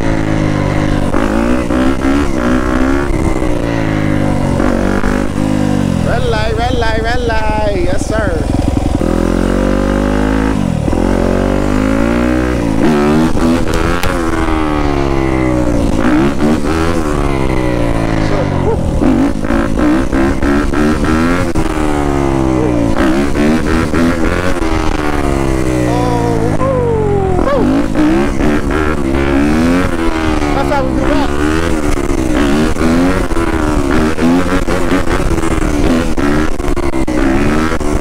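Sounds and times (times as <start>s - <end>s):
dirt bike engine revving: 0.0s - 38.0s.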